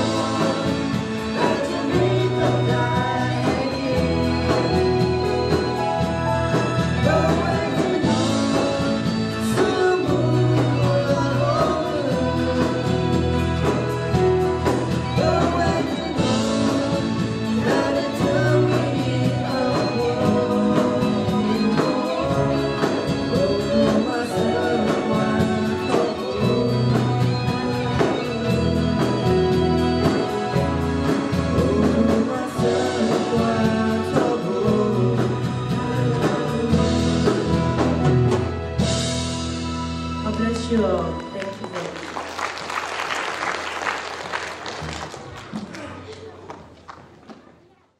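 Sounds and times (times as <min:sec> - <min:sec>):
woman singing into microphone: 0:00.0 - 0:05.8, 0:06.4 - 0:13.9, 0:15.0 - 0:29.8.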